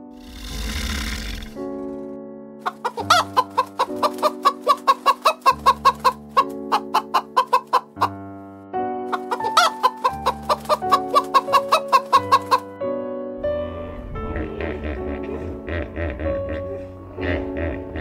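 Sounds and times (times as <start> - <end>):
background music sustained notes: 0.0 - 18.0
drawn-out chicken call: 2.6 - 8.1, 9.1 - 12.6
chickens clucking: 2.6 - 8.2, 9.1 - 12.7.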